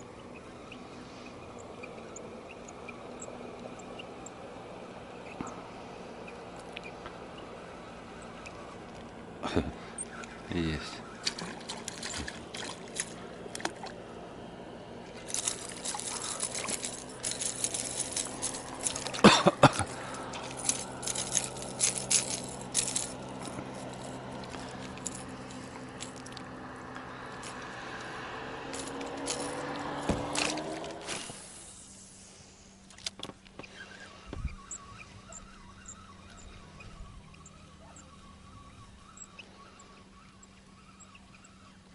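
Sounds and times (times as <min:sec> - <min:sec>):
low steady hum: 0:00.0 - 0:41.9
small clicks and crackles: 0:11.2 - 0:14.0, 0:15.1 - 0:31.6, 0:32.8 - 0:37.6
water splashing and dripping: 0:11.2 - 0:14.0.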